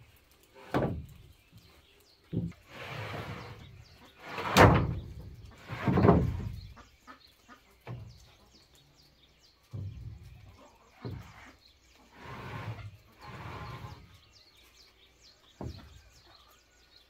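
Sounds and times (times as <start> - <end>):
wooden planks scraping: 0.2 - 6.9, 9.6 - 16.2
wooden planks knocking: 0.5 - 1.2, 4.2 - 6.6.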